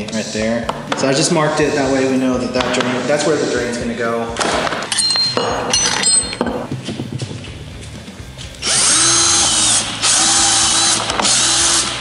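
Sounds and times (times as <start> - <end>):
cordless drill boring plastic: 8.6 - 12.0.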